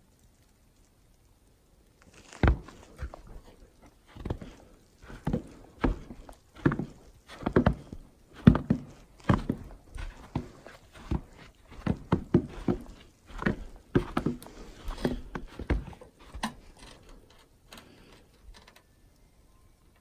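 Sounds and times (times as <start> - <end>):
footsteps on snowy wooden deck: 2.0 - 17.2.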